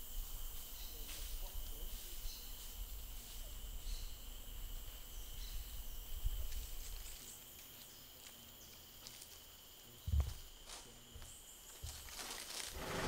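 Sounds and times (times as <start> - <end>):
faint bird chirps: 0.7 - 8.9.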